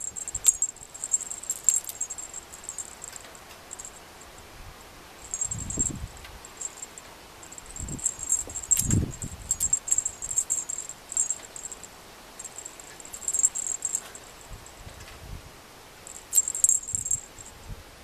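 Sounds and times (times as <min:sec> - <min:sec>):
cat toy jingling: 0:00.0 - 0:04.1, 0:05.2 - 0:14.6, 0:16.0 - 0:17.6.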